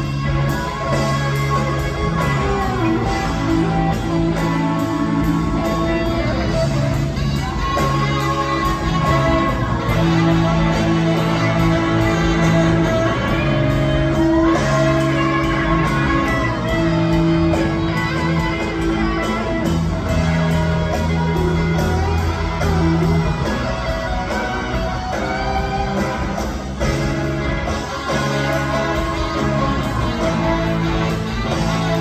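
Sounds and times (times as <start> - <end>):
electric guitar lead bent notes: 0.0 - 32.0
rock band playing live: 0.0 - 32.0.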